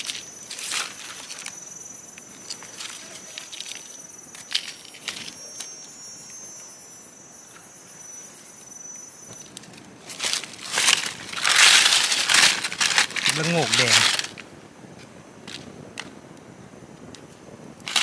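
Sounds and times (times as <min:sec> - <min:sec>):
rustles and snaps of leaf litter: 0:00.0 - 0:06.4, 0:09.3 - 0:16.4, 0:17.1 - 0:18.0
insects chirring: 0:00.0 - 0:18.0.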